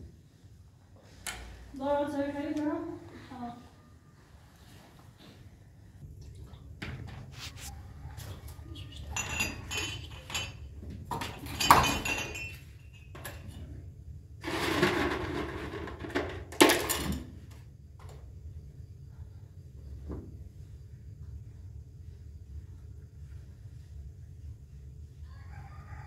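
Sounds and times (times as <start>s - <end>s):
glasses and dishes clinking: 8.9s - 13.4s.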